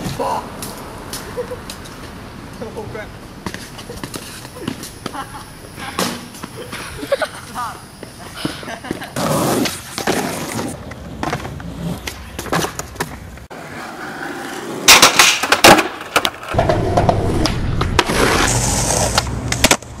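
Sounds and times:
skateboard wheels rolling: 0:03.4 - 0:07.1, 0:07.9 - 0:20.0
skateboard clacking on ground: 0:08.4 - 0:20.0.

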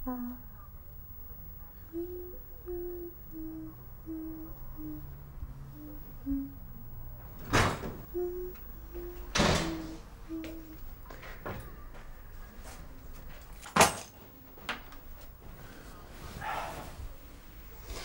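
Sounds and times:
woman humming: 0:00.0 - 0:11.4.

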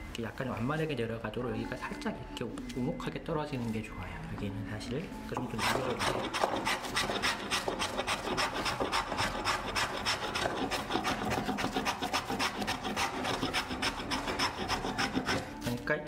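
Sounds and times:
hand plane shaving wood: 0:05.6 - 0:15.6.

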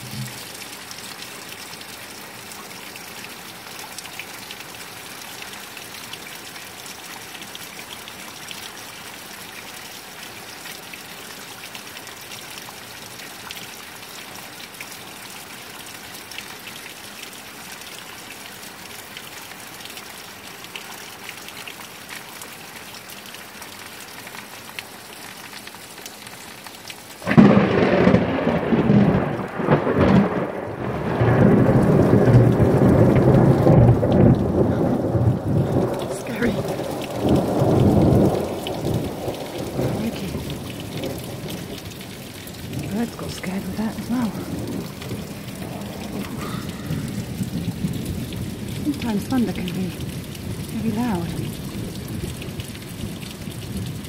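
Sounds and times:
heavy rain pouring: 0:00.0 - 0:54.0
thunder crash and rumble: 0:27.2 - 0:41.5.

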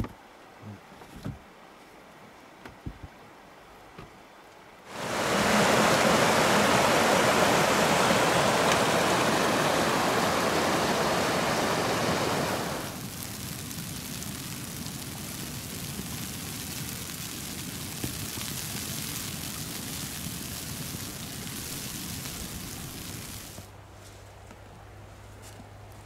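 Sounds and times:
loud steady rushing noise: 0:04.9 - 0:13.4.

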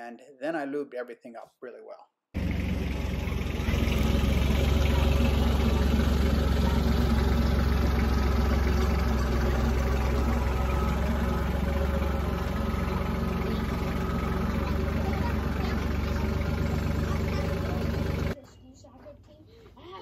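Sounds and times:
tires rolling over gravel: 0:02.4 - 0:18.4
tractor diesel engine running: 0:02.4 - 0:18.4.

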